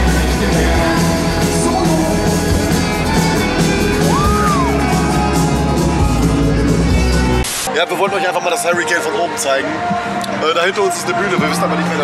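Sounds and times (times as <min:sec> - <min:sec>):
loud rock music with vocals: 0:00.0 - 0:12.0
rising and falling tone: 0:03.9 - 0:06.6.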